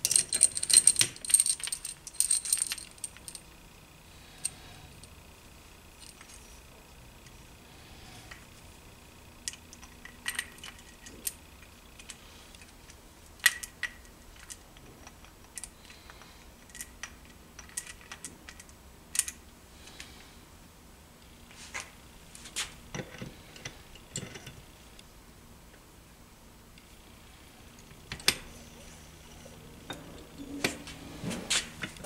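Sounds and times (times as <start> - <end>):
metal gears clicking and clinking: 0.0 - 3.4.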